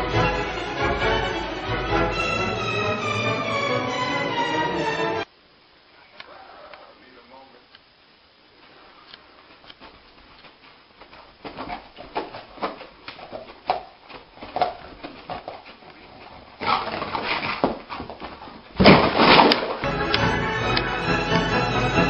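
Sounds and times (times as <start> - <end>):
dog paws scrabbling on carpet: 9.5 - 18.7
loud sudden clatter: 18.8 - 19.8.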